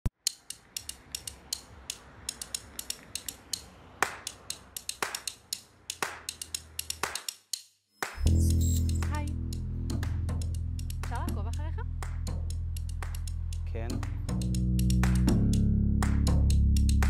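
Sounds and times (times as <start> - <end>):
rapid mechanical clicking: 0.1 - 7.6.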